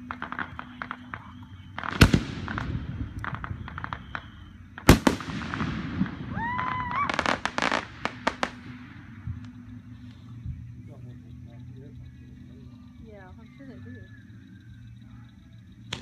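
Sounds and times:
fireworks booming: 0.0s - 9.4s
sharp firework pops: 0.0s - 9.6s
low rumbling echo: 2.0s - 3.7s, 4.3s - 6.4s.

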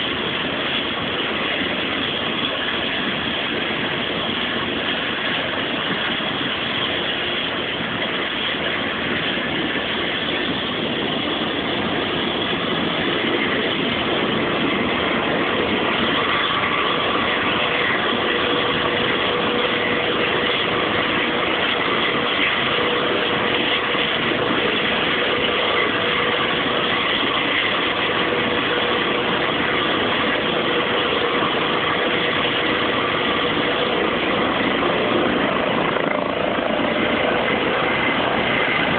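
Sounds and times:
helicopter turbine engines running: 0.0s - 38.9s
steady whine: 0.0s - 38.9s.

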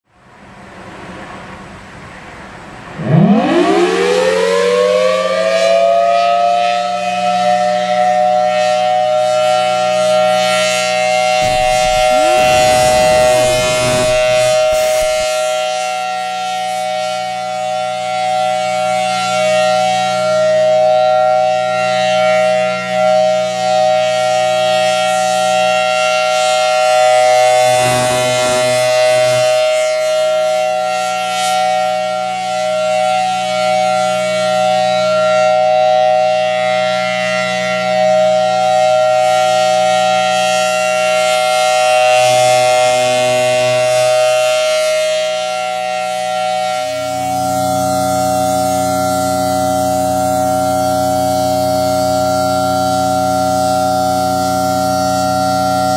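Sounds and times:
two-tone warning siren: 2.7s - 55.9s
low rumble: 11.4s - 15.5s.

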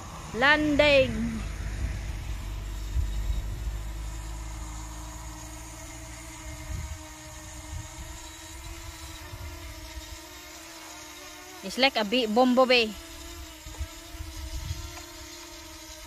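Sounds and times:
low rumble: 0.0s - 5.5s
drone propellers humming: 0.0s - 16.0s.

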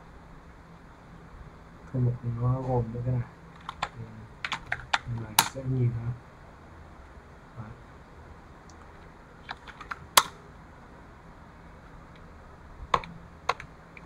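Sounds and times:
computer keyboard typing: 3.6s - 5.6s, 13.0s - 13.7s.

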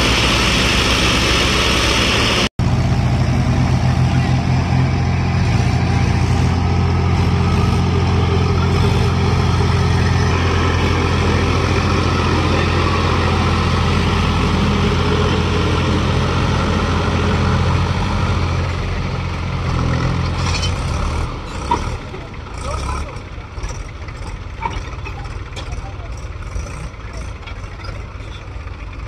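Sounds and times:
diesel tractor engines under load: 0.0s - 29.0s.

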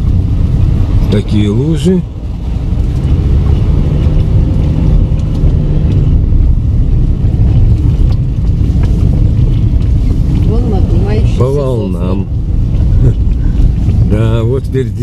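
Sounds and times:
car engine and tyres on dirt road: 0.0s - 15.0s.

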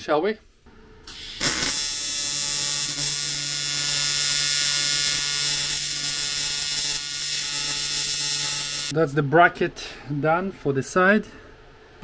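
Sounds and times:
welding arc buzzing hum: 0.7s - 9.0s.

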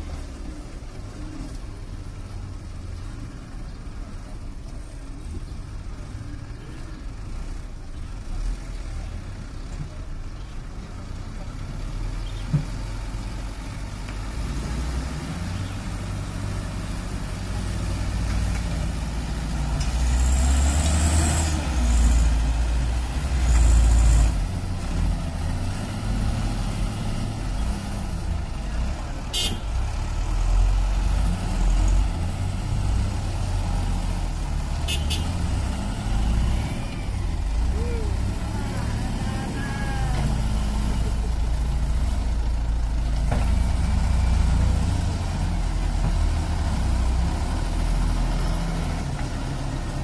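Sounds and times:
heavy diesel engines rumbling: 0.0s - 50.0s.

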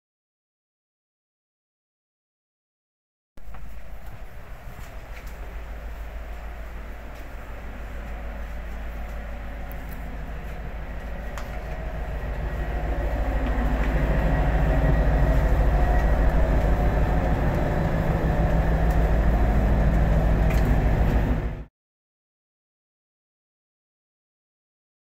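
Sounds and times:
diesel engine rumble and hum: 3.4s - 21.7s.

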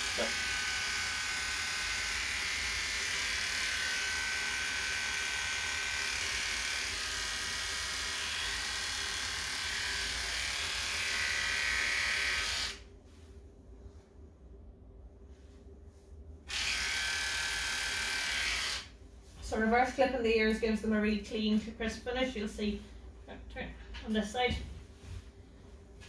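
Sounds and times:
electric clippers buzzing: 0.0s - 12.8s, 16.5s - 18.9s.

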